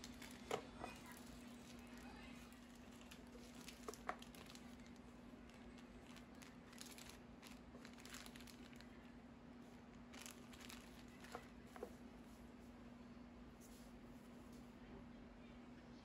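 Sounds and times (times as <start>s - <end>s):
plastic bags crinkling: 0.0s - 11.9s
faint hum: 0.0s - 16.0s.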